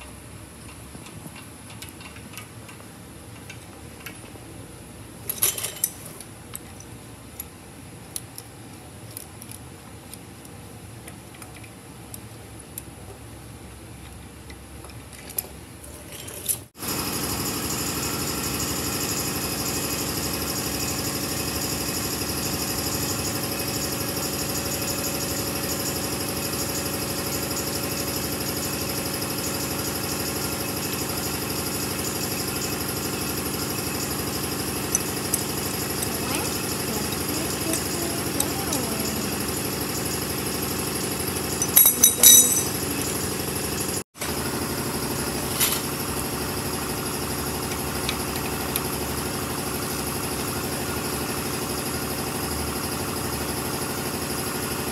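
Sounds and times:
motor humming: 32.2s - 39.9s
metal hand tools clinking: 41.6s - 42.9s.

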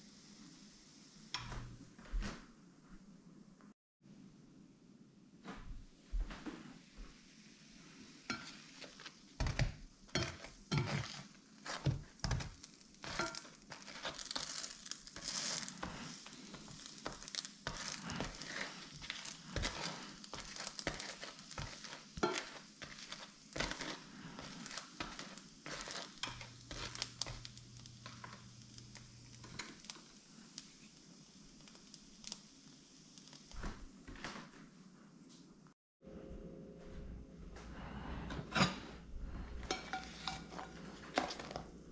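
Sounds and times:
light sizzle: 0.0s - 2.2s, 5.6s - 35.8s, 37.8s - 41.9s
spatula scraping and tapping pan: 1.3s - 1.8s, 8.2s - 31.0s, 38.2s - 41.8s.

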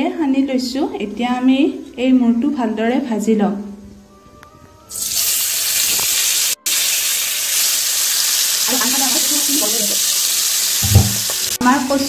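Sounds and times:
fish sizzling in hot oil: 4.9s - 12.0s.

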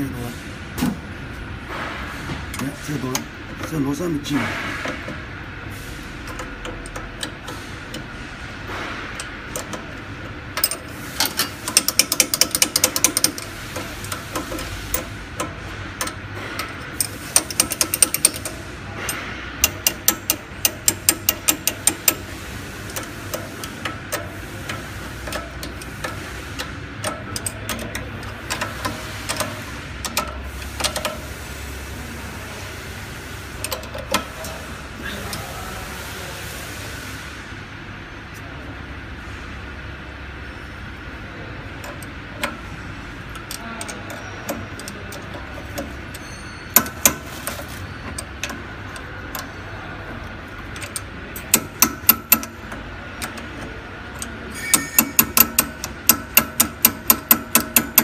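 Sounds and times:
steady background hum: 0.0s - 58.0s
rapid metal clicking of hand tool: 10.6s - 31.3s, 43.2s - 49.5s, 50.1s - 58.0s.

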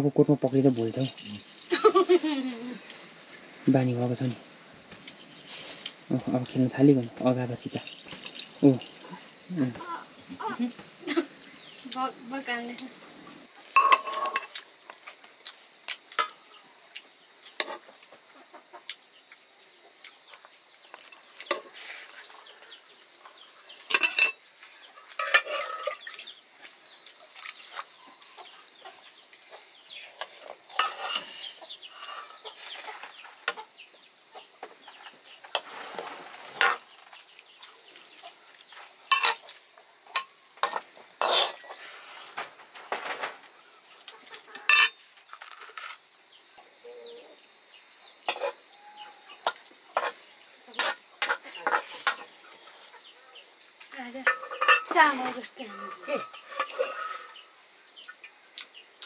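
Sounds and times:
serving spoon scraping steel plates: 13.8s - 14.6s, 17.6s - 17.9s, 23.3s - 26.4s, 30.2s - 33.3s, 35.4s - 36.9s, 39.1s - 42.4s, 44.2s - 46.0s, 48.3s - 48.7s, 49.4s - 52.3s, 54.2s - 57.5s
chickens clucking: 17.6s - 20.5s, 27.6s - 44.8s, 46.6s - 58.8s.

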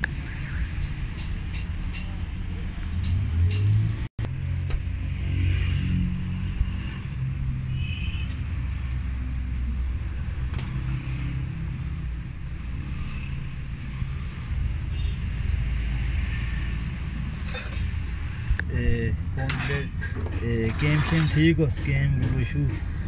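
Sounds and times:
light clicks of metal parts: 19.4s - 20.5s.

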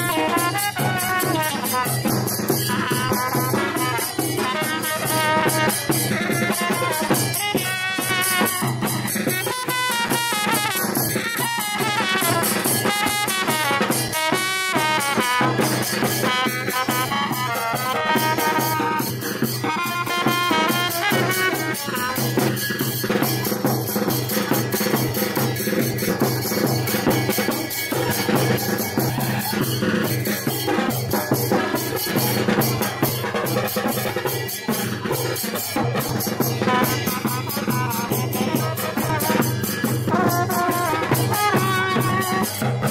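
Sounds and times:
horn melody: 0.0s - 2.0s, 9.4s - 15.6s, 16.2s - 22.2s, 40.1s - 42.5s
rapid marching drumbeats: 0.0s - 42.9s.

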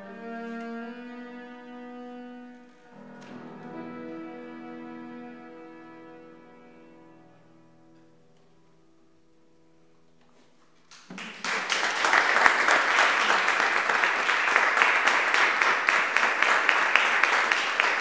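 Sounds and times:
audience applause: 10.9s - 18.0s.

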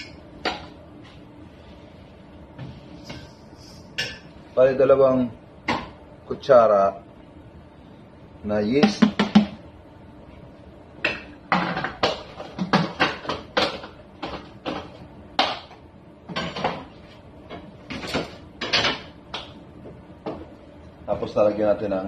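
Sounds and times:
kitchen utensils clattering: 17.9s - 19.1s.

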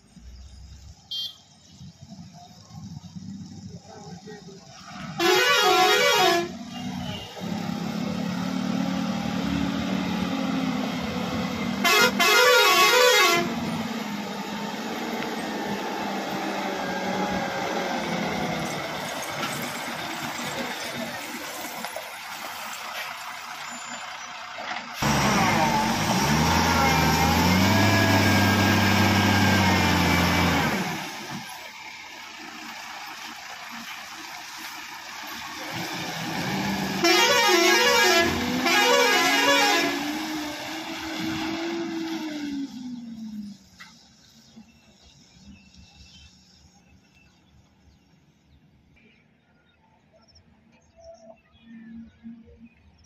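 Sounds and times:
diesel truck engine running: 1.7s - 45.6s
warbling truck horn: 5.1s - 7.5s, 11.7s - 13.8s, 36.9s - 40.3s.

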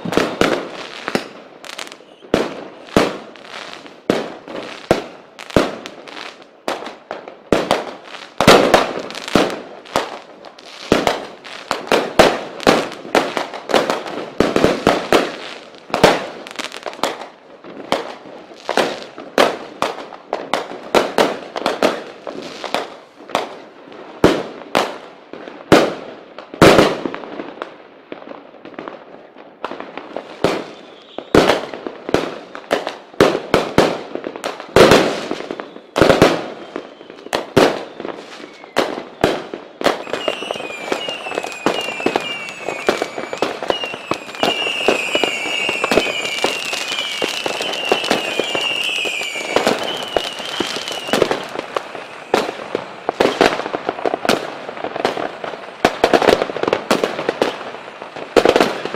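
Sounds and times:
fireworks and firecrackers banging: 0.0s - 58.9s.

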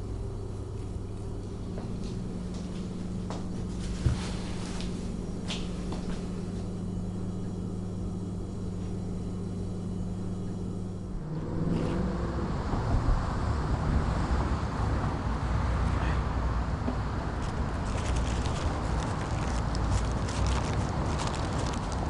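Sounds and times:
steady low hum: 0.0s - 22.0s
road traffic rumble: 11.1s - 22.0s.

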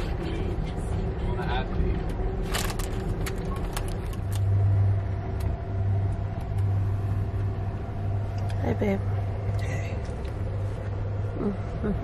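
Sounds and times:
train rumble and hum: 0.0s - 12.0s
sharp clicks and rattles: 2.0s - 4.6s.

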